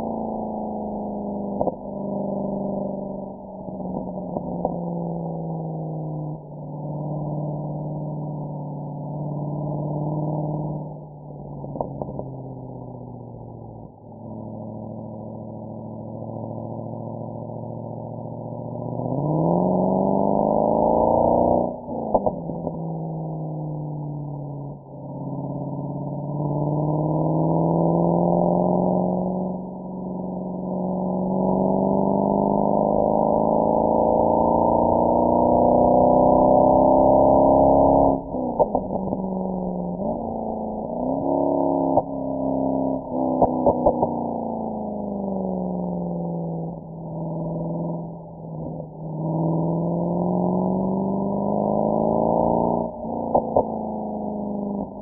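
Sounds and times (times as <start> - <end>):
car exhaust accelerating: 0.0 - 55.0.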